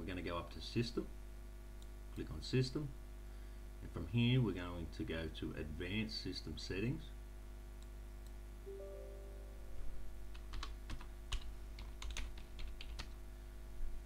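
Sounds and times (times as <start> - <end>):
low steady hum: 0.0 - 14.0
computer keyboard typing: 10.3 - 13.2.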